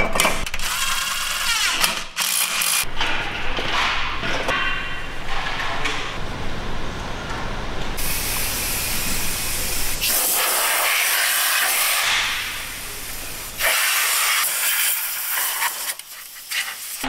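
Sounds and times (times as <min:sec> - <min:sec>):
compressed air blow gun: 0:08.0 - 0:12.3, 0:13.6 - 0:17.0.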